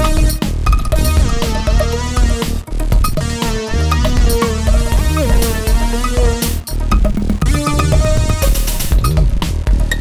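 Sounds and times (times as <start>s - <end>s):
electronic music with heavy bass: 0.0s - 10.0s.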